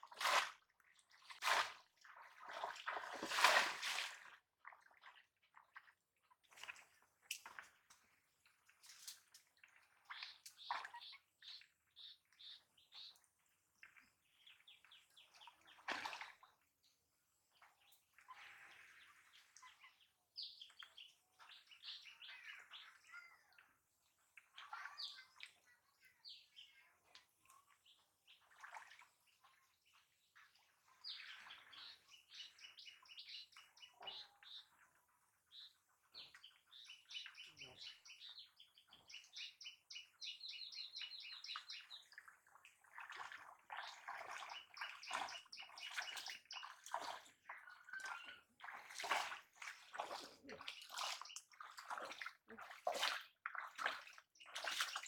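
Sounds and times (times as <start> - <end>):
muddy water sloshing and splashing: 0.0 - 16.7, 17.5 - 20.0, 28.2 - 34.6, 40.8 - 55.0.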